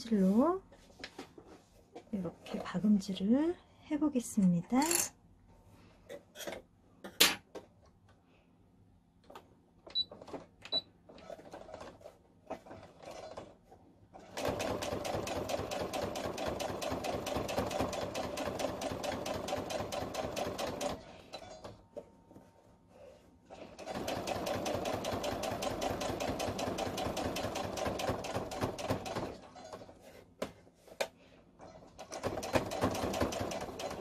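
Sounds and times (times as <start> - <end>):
sewing machine stitching: 11.1 - 21.7, 23.5 - 29.9, 31.7 - 34.0.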